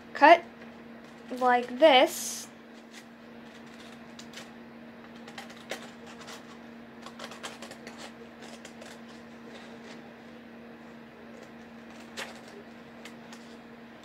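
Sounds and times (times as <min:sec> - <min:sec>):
scissors snipping paper: 0:05.2 - 0:10.0.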